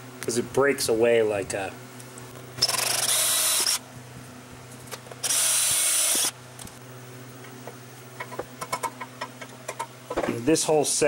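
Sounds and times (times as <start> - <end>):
power drill boring: 2.6 - 3.8, 5.2 - 6.3.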